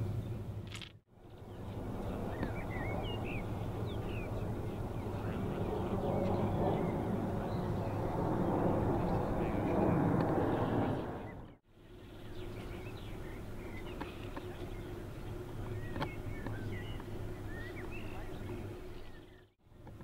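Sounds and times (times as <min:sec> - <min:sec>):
bird chirps: 0:01.4 - 0:08.1, 0:12.1 - 0:19.5
broad rushing noise: 0:01.5 - 0:11.5.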